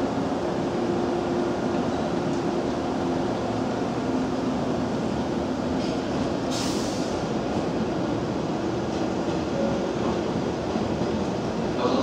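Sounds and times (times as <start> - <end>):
trains humming and rumbling: 0.0 - 12.0
short hiss: 5.8 - 7.2.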